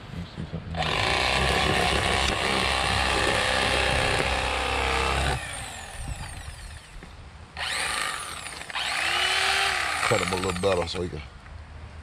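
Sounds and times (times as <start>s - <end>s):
electric knife running: 0.8s - 7.0s, 7.6s - 10.9s.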